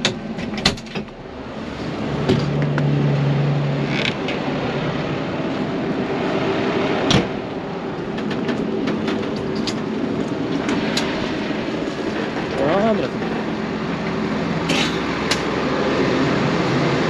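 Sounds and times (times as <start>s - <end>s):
tractor engine running: 0.0s - 17.0s
light clicks and clatters: 8.1s - 11.2s.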